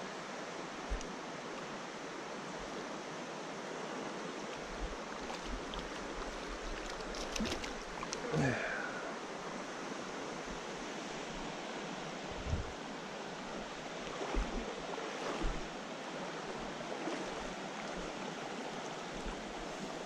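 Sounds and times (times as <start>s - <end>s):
stream water rushing: 0.0s - 20.0s
dull low thumps: 12.4s - 12.7s.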